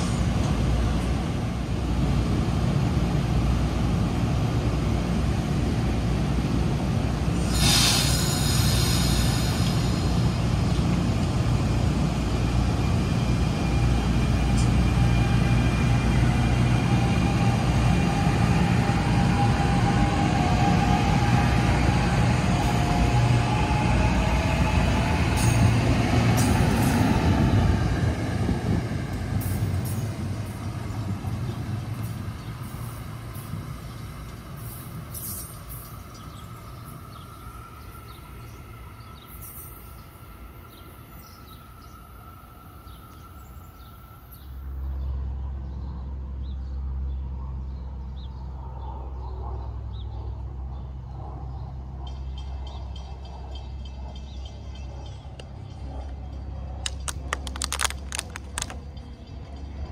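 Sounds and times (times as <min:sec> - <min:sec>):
train passing: 0:00.0 - 0:47.1, 0:49.7 - 0:59.9.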